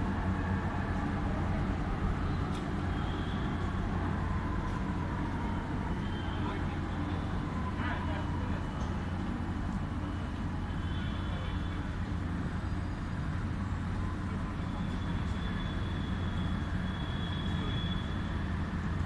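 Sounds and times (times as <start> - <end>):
faint high whine: 0.2 - 4.9, 10.0 - 19.0.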